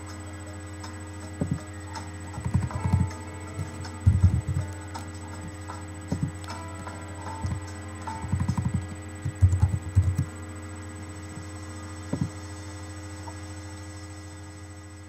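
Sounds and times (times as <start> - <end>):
steady electrical hum: 0.0 - 15.0
dull thumps: 12.1 - 12.4.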